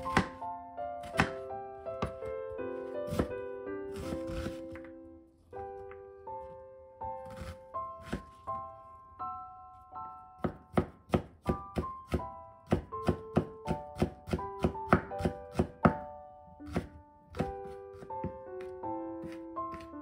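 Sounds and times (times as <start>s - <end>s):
knife chopping on wooden board: 0.0s - 0.4s, 1.0s - 1.4s, 3.1s - 3.3s, 4.0s - 4.9s, 7.2s - 8.4s, 10.4s - 16.0s, 16.7s - 19.9s
light piano music: 0.0s - 20.0s.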